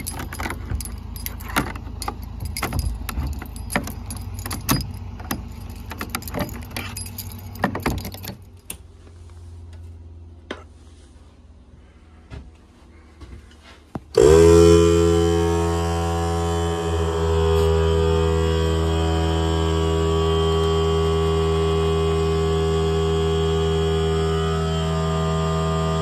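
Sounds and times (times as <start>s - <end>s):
padlock clicking and rattling: 0.0s - 8.8s
loud multi-tone hum: 14.1s - 26.0s.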